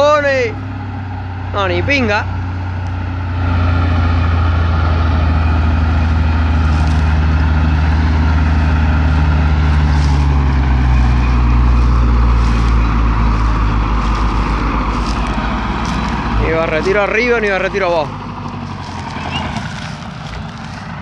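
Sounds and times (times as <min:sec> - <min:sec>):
heavy engines labouring: 0:00.0 - 0:21.0.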